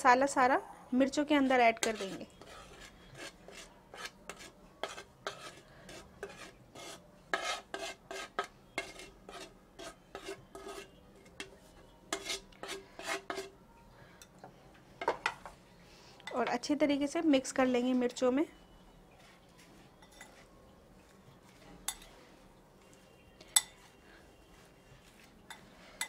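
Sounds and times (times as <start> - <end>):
spoon scraping ceramic plate: 1.7 - 13.6, 20.0 - 20.5.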